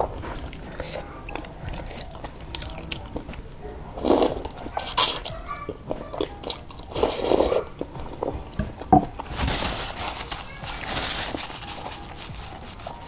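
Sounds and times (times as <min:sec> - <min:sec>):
chewing with wet mouth sounds: 0:00.0 - 0:09.3
person slurping noodles: 0:04.0 - 0:05.2, 0:06.9 - 0:07.6
soft rustle: 0:09.2 - 0:13.0.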